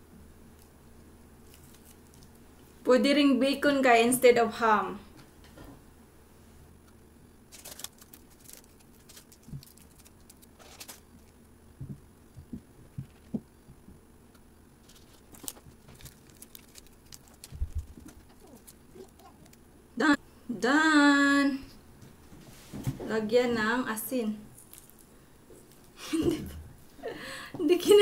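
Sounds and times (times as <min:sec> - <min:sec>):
hands rustling nori sheets: 0:01.4 - 0:02.7, 0:07.5 - 0:13.4, 0:14.8 - 0:19.6, 0:24.5 - 0:26.0
soft low thump: 0:11.8 - 0:14.0.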